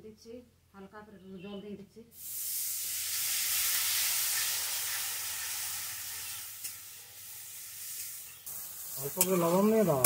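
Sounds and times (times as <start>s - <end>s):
onions sizzling in oil: 2.2s - 10.0s.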